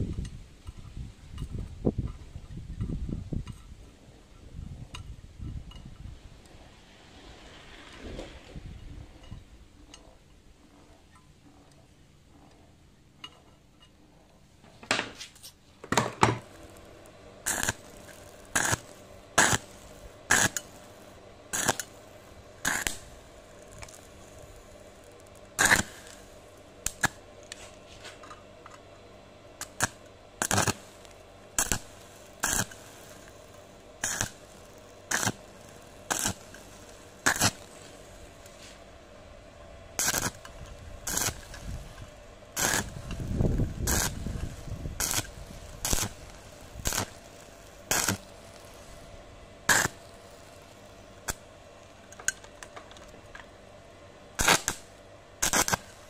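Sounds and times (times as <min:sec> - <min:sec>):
welding arc bursts: 0:16.3 - 0:27.8, 0:29.5 - 0:38.9, 0:39.9 - 0:53.2, 0:54.3 - 0:56.0.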